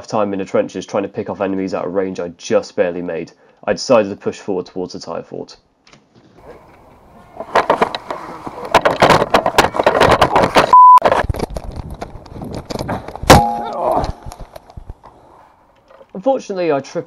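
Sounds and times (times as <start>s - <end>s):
short steady beep: 10.7s - 11.0s.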